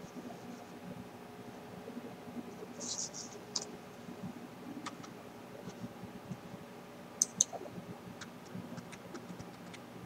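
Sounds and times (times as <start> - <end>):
computer mouse clicking: 4.8 - 5.1, 7.2 - 7.6.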